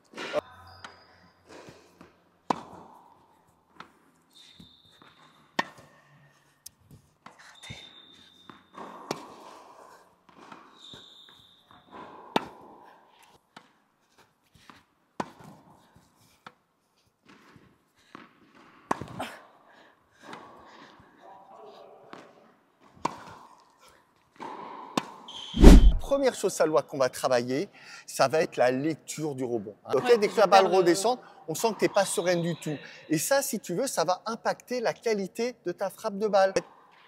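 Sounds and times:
racket hitting tennis ball: 25.6s - 26.2s.

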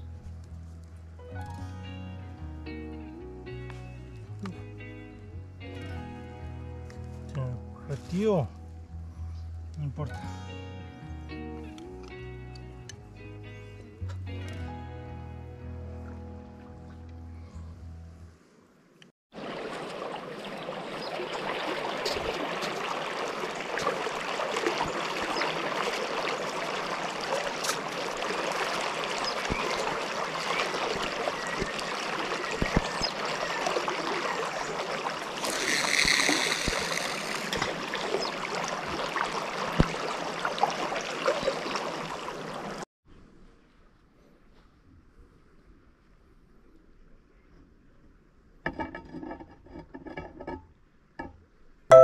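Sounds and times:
river water rushing: 19.4s - 42.8s.

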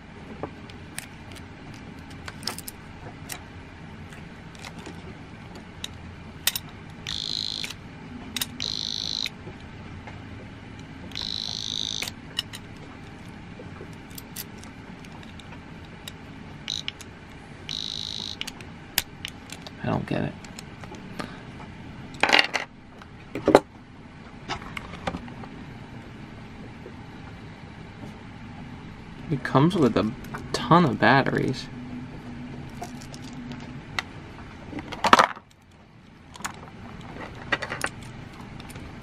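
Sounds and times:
alarm padlock buzzer beeping: 7.0s - 7.8s, 8.4s - 9.4s, 11.1s - 12.2s, 16.6s - 17.0s, 17.7s - 18.5s.

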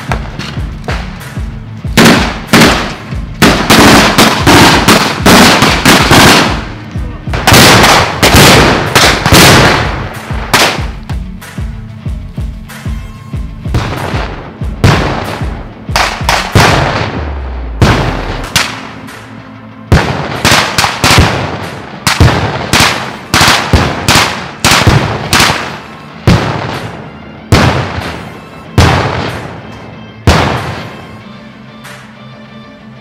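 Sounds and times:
rifle shots echoing: 2.0s - 11.0s, 13.8s - 19.0s, 19.9s - 29.6s, 30.3s - 31.0s.

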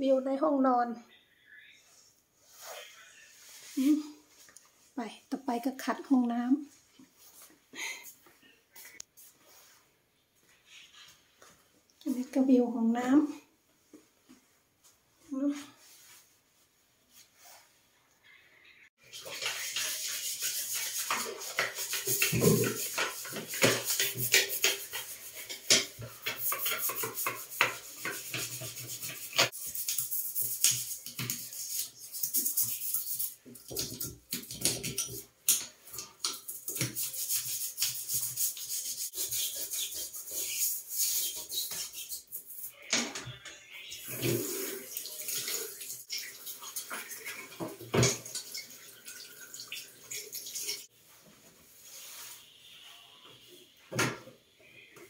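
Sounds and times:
sponge scrubbing a washbasin: 19.0s - 35.3s, 36.2s - 42.7s, 44.1s - 47.6s, 51.7s - 52.5s
sharp scrapes: 36.4s - 42.8s.

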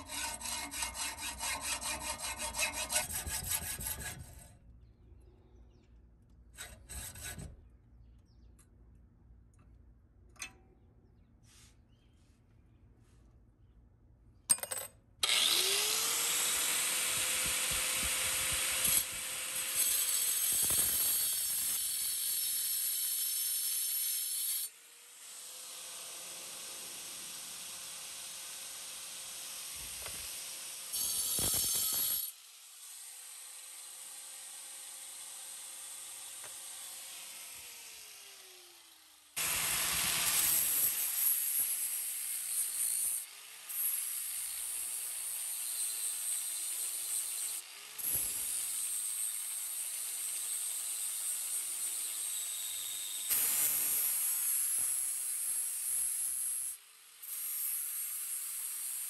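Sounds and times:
power grinder grinding metal: 0.0s - 4.5s, 15.2s - 24.7s, 30.9s - 32.3s, 36.4s - 59.0s
grinder motor whine: 15.2s - 19.2s.

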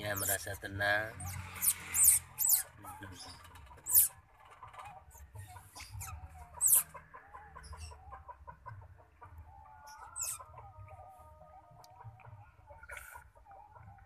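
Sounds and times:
otter pups squeaking: 0.0s - 0.6s, 1.2s - 11.1s.

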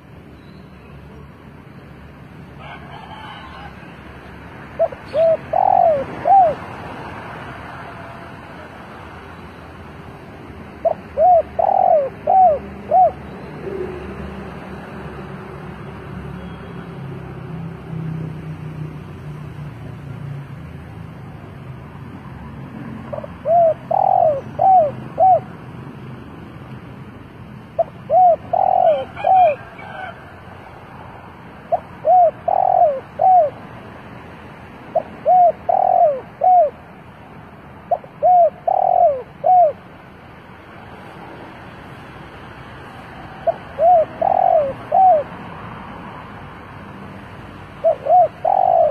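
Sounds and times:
dove cooing: 4.8s - 6.8s, 10.7s - 14.2s, 23.1s - 25.5s, 27.7s - 30.2s, 31.7s - 33.6s, 34.9s - 36.8s, 37.9s - 39.8s, 43.4s - 45.4s, 47.8s - 48.9s.

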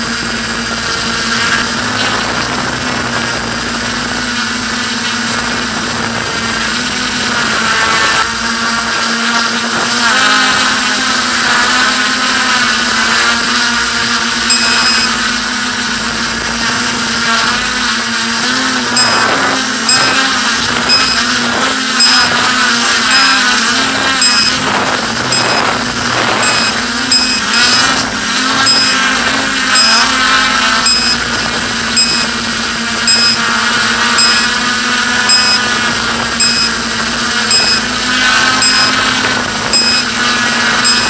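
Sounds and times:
small motor humming: 0.0s - 41.0s
faint ticking: 18.9s - 20.2s, 26.4s - 27.9s, 31.9s - 32.4s, 33.1s - 33.4s, 34.2s - 34.5s, 35.3s - 35.6s, 36.4s - 36.8s, 37.4s - 37.9s.

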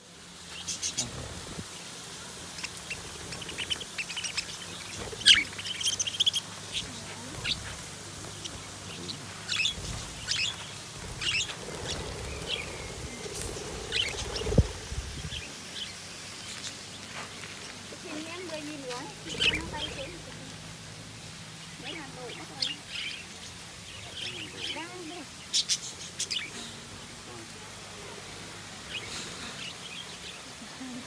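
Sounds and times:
budgerigars chirping: 2.5s - 16.8s, 18.9s - 20.2s, 21.6s - 26.8s.

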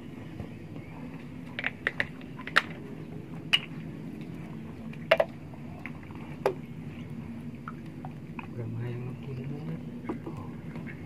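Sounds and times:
low background hum: 0.0s - 11.0s
clicks and crackles of eating: 1.4s - 2.8s.

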